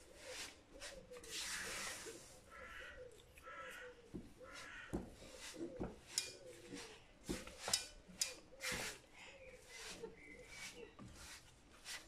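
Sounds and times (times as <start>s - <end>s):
spatula scraping a pan: 4.5s - 12.0s.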